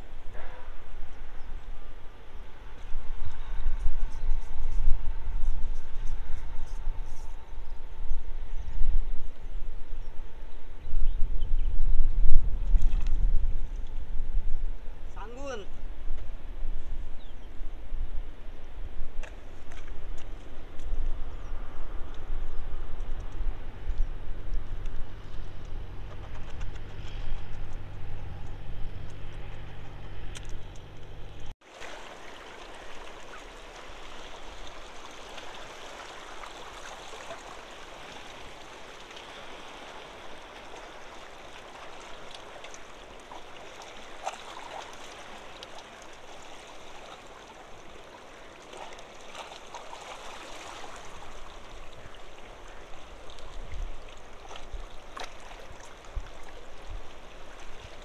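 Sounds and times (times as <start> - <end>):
low rumble with hum: 15.8 - 33.3
seawater lapping on rocks: 31.6 - 58.0.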